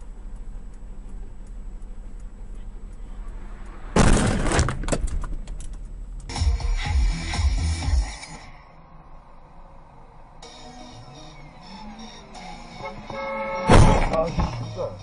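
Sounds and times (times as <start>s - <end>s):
faint regular ticking: 0.0s - 4.0s, 5.0s - 6.7s
vehicle interior hum: 0.0s - 15.0s
vehicle collision crash: 3.8s - 5.6s, 13.6s - 14.6s.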